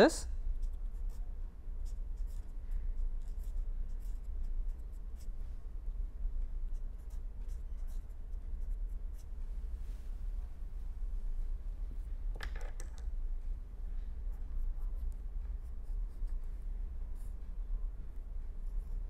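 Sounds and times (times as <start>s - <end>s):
marker pen writing on paper: 0.6s - 1.2s, 1.8s - 5.4s, 6.5s - 9.4s, 14.6s - 16.6s, 18.6s - 19.0s.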